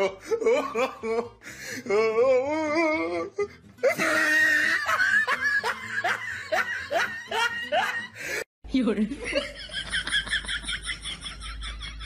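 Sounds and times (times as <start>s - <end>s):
person laughing: 3.8s - 8.3s, 9.2s - 12.0s.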